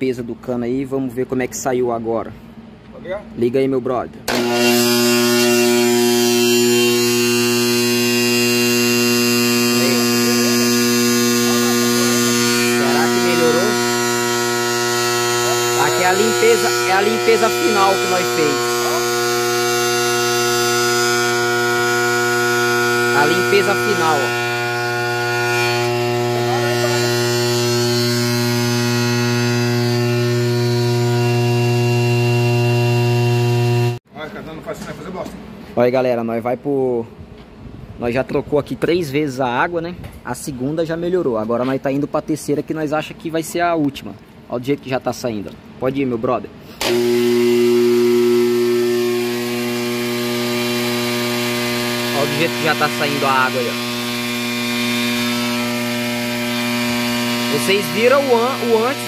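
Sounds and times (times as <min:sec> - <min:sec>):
compressor buzzing hum: 0:04.2 - 0:34.0, 0:46.6 - 0:59.0.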